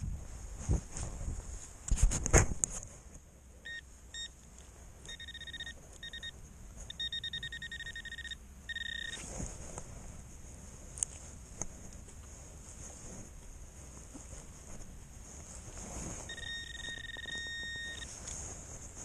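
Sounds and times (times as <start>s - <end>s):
pinpointer probe beeping: 3.6s - 4.4s, 5.0s - 9.2s, 16.3s - 18.1s.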